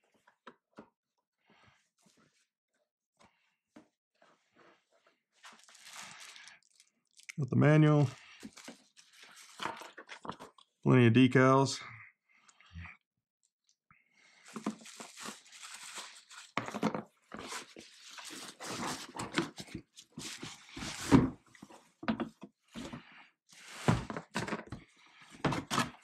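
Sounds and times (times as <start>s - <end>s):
cardboard packing handled: 5.4s - 6.8s, 8.4s - 10.5s, 14.3s - 21.8s
bubble wrap crinkling: 5.4s - 7.4s, 8.1s - 10.3s, 14.3s - 16.7s, 17.4s - 21.1s.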